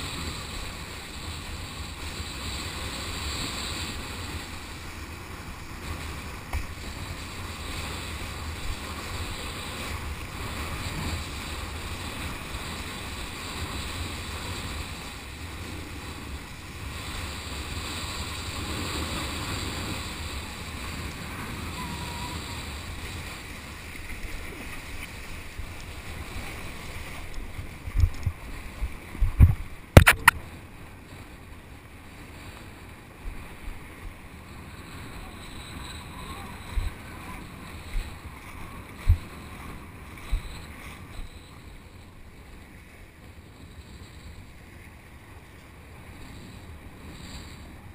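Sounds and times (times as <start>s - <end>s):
water rushing: 0.0s - 42.3s
sharp knock: 30.0s - 30.4s.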